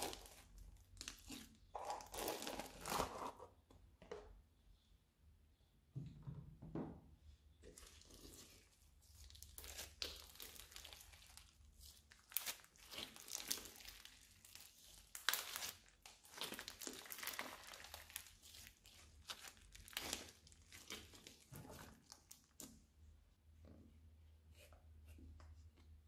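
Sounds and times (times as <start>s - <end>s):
slime crackling and popping: 9.2s - 21.4s.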